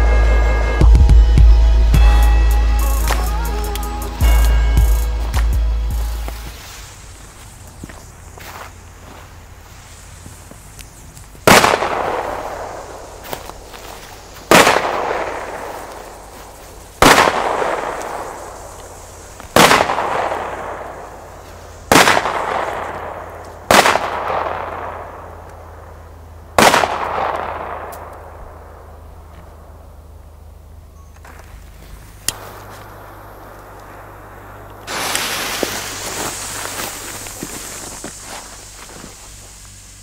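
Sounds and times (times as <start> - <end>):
firecrackers exploding: 11.4 - 25.9, 26.5 - 28.9, 32.3 - 40.0.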